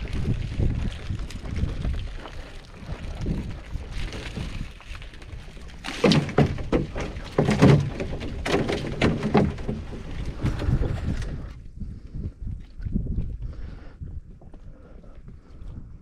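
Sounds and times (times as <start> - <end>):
knocks and clatter of gear: 4.0 - 11.4.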